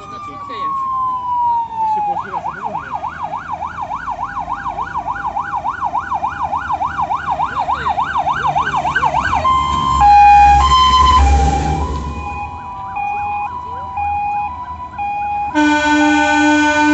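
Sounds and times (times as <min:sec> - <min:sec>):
fire engine siren yelp: 0:00.0 - 0:16.9
truck engine rumble: 0:00.0 - 0:16.9
two-tone horn call: 0:15.5 - 0:16.9.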